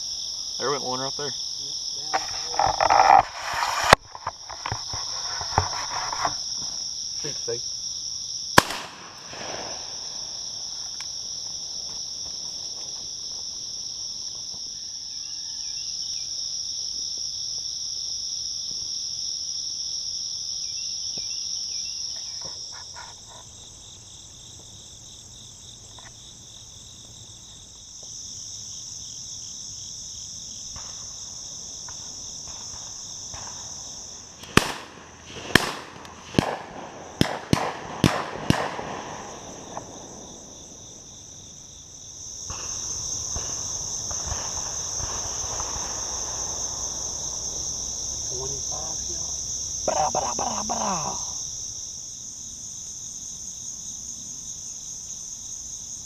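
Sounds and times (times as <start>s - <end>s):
crickets and insects chirping: 0.0s - 56.0s
shotgun shots: 8.6s - 10.2s, 34.4s - 40.0s.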